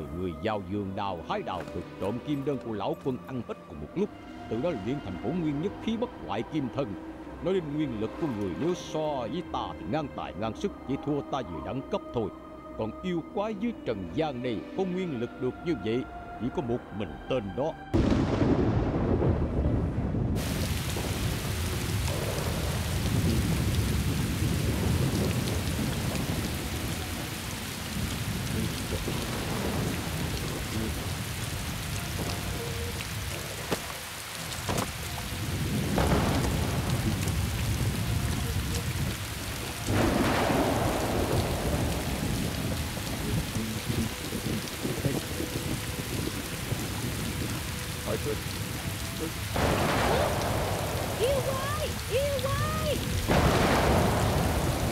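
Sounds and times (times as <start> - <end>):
thunder rumbling: 18.0 - 54.9
thunderclaps: 18.0 - 54.9
heavy rain hissing: 20.4 - 54.9.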